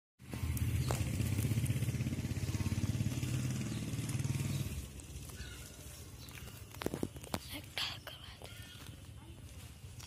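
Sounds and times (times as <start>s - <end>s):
small engine running: 0.2s - 6.8s.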